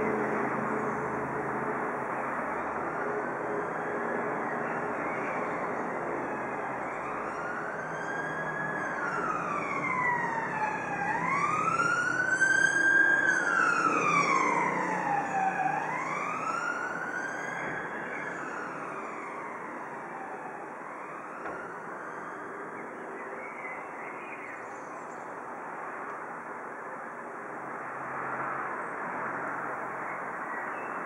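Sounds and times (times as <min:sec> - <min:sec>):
emergency siren wailing: 0:00.0 - 0:23.1
steady background noise: 0:00.0 - 0:31.0.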